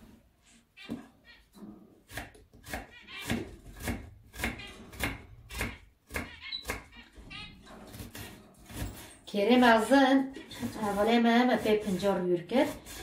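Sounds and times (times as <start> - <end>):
knife slicing onion on board: 2.0 - 6.9, 7.9 - 9.9, 10.5 - 13.0.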